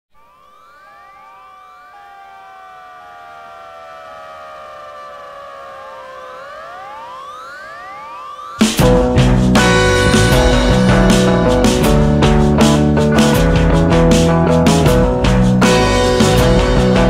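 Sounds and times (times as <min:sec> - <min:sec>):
synthesized tones gliding: 0:00.1 - 0:13.5.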